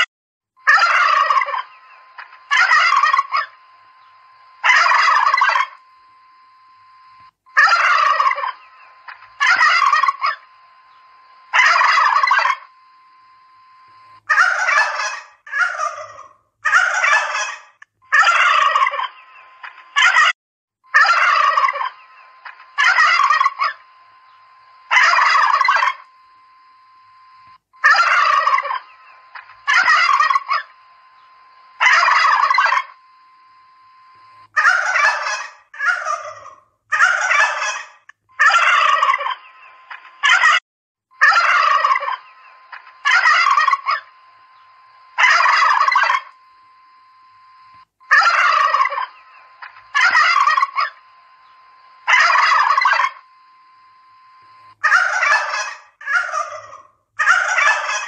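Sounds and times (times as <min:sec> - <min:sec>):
turkeys gobbling: 0:00.6 - 0:05.8, 0:07.5 - 0:12.8, 0:14.3 - 0:20.3, 0:20.9 - 0:26.1, 0:27.8 - 0:33.0, 0:34.6 - 0:40.6, 0:41.2 - 0:44.2, 0:45.2 - 0:46.4, 0:48.1 - 0:51.0, 0:52.0 - 0:53.3, 0:54.8 - 0:58.0.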